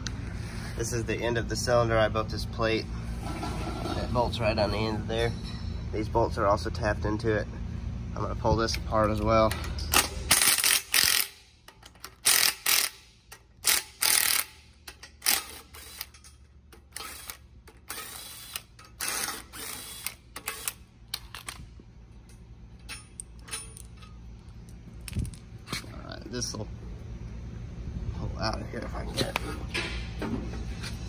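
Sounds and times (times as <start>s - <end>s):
impact wrench bursts: 9.5s - 21.6s.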